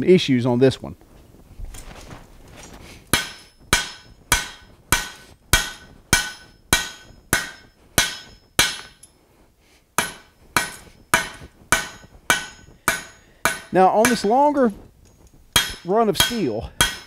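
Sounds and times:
hammer striking steel on anvil: 0:03.1 - 0:09.2, 0:10.0 - 0:14.7, 0:15.5 - 0:17.0.

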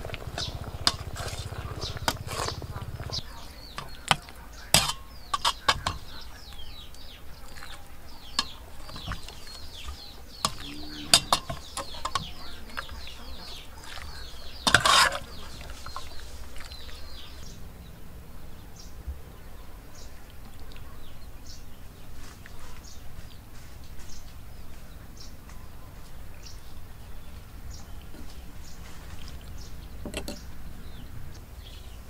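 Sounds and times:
utensils clattering: 0:00.0 - 0:06.6, 0:07.6 - 0:16.8
ladle clinking against pot: 0:00.0 - 0:06.7, 0:07.5 - 0:13.0, 0:13.8 - 0:16.2
birds chirping: 0:00.0 - 0:32.0.

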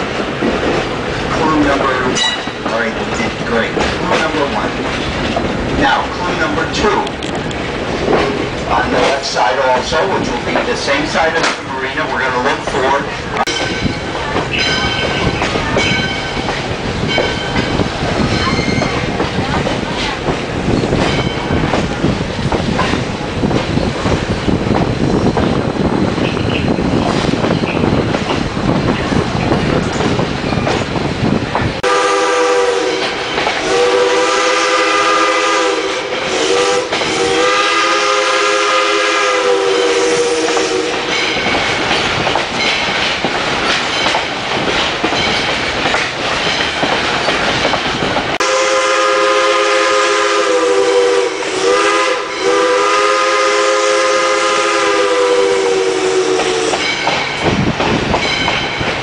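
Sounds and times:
train wheels clacking over rail joints: 0:00.0 - 0:25.6, 0:32.9 - 0:34.7, 0:35.9 - 0:38.2, 0:40.4 - 0:48.4, 0:56.3 - 0:59.0
steam locomotive whistle blasts: 0:31.8 - 0:41.2, 0:48.4 - 0:57.0.

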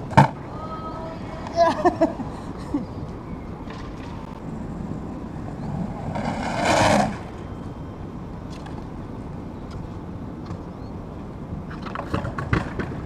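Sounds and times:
skateboard wheels rolling on concrete: 0:00.0 - 0:13.0
brighter skateboard sound: 0:03.6 - 0:07.5, 0:11.7 - 0:13.0.

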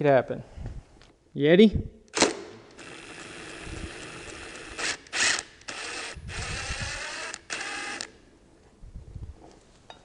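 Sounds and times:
cordless impact wrench running: 0:02.1 - 0:08.2.

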